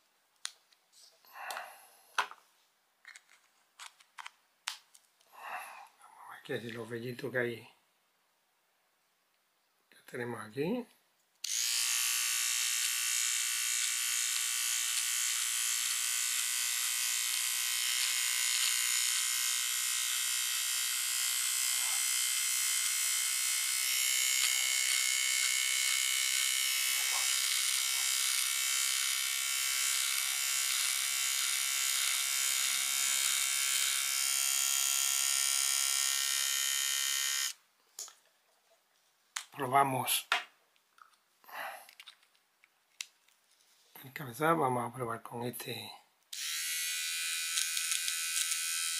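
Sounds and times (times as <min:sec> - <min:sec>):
hair trimmer buzzing: 0:11.4 - 0:37.6, 0:46.3 - 0:48.9.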